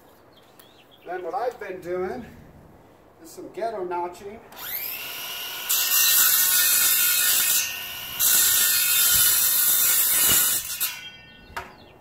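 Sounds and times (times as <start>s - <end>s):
saw motor whining: 4.6s - 11.1s
circular saw cutting pipe: 4.6s - 11.2s.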